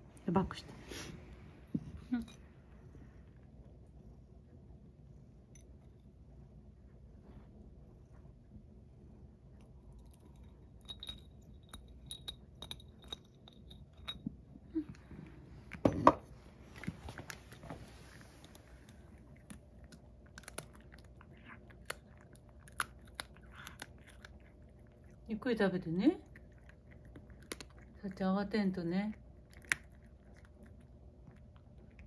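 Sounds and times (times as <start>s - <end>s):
cat chewing crunchy food: 15.1s - 25.3s, 26.2s - 32.0s.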